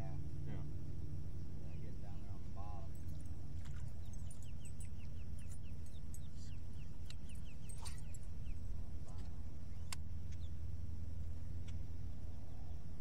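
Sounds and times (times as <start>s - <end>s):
bird chirping: 0.0s - 10.7s
steady low hum: 0.0s - 13.0s
sharp clicks: 7.0s - 7.3s.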